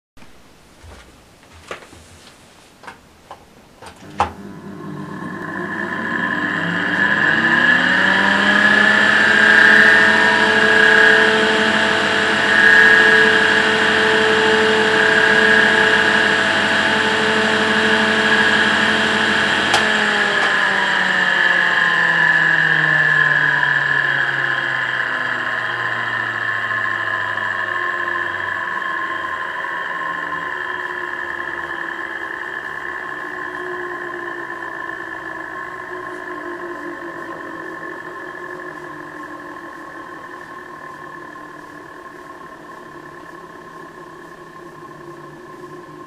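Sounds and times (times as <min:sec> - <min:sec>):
fan whining and grinding: 0:00.2 - 0:46.0
fan switch click: 0:03.8 - 0:04.4.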